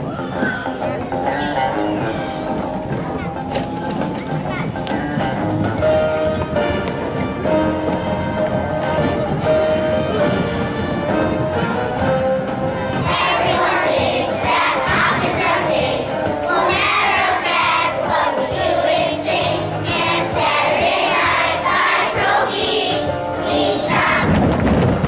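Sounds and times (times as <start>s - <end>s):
instrumental accompaniment: 0.0s - 25.0s
children's choir singing: 7.5s - 24.4s.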